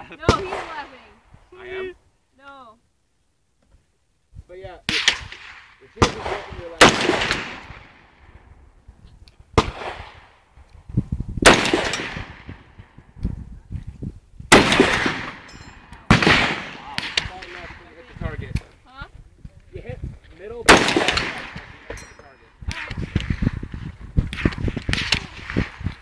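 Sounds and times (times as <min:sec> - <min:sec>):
rifle gunshots with ringing tail: 0:00.2 - 0:01.2, 0:04.9 - 0:08.7, 0:09.6 - 0:10.5, 0:11.4 - 0:13.0, 0:14.5 - 0:18.4, 0:20.6 - 0:23.3.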